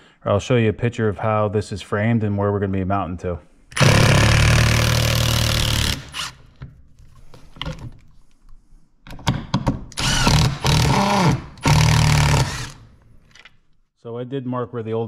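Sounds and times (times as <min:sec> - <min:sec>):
impact driver running: 0:03.8 - 0:06.4, 0:10.0 - 0:12.9.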